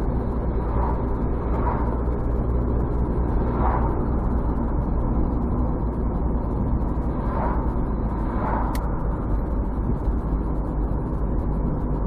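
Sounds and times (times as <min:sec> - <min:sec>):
car engine and tyre noise: 0:00.0 - 0:12.0.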